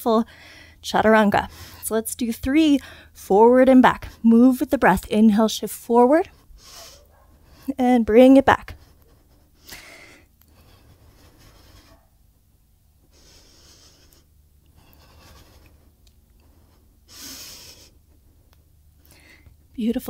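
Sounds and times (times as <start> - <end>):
woman breathing in and out: 0.3 - 0.8, 2.8 - 3.2, 6.4 - 7.7, 9.6 - 12.0, 13.0 - 18.1, 19.0 - 19.6.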